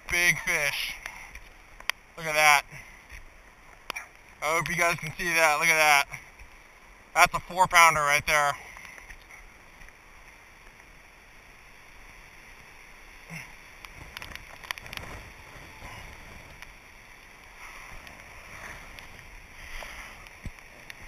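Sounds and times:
faint wind noise: 0.0s - 21.0s
handling rustle: 13.9s - 21.0s.

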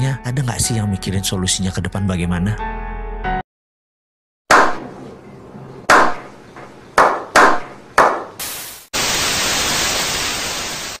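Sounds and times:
tv static hiss: 8.4s - 11.0s.

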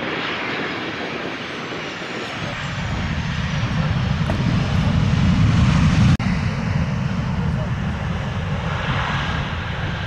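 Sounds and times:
jet airliner roaring past: 0.0s - 10.0s
deep rumble: 1.8s - 10.0s.

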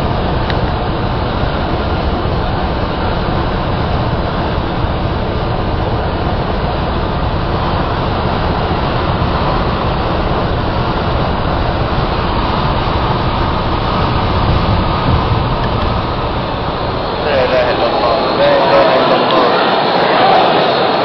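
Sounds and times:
vehicle road and engine rumble: 0.0s - 19.5s.

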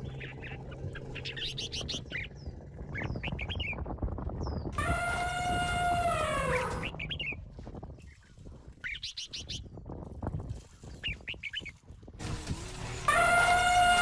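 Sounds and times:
elephant trumpeting: 4.8s - 7.0s, 13.0s - 14.0s.

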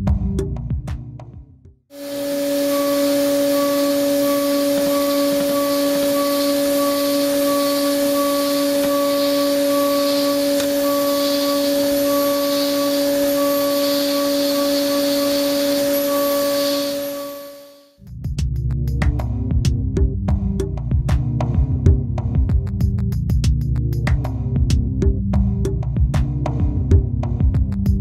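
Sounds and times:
high tone: 1.9s - 17.9s
milling spindle whine: 1.9s - 17.9s.

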